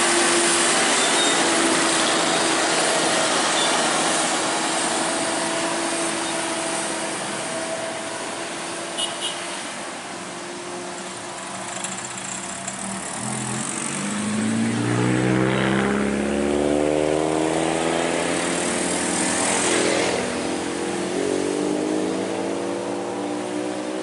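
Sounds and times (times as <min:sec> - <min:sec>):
car engines accelerating past: 0:12.1 - 0:24.0.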